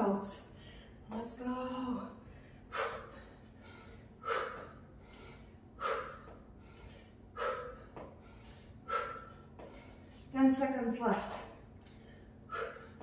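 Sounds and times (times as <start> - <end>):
woman breathing hard: 0.4 - 1.1, 1.8 - 10.3, 11.8 - 13.0.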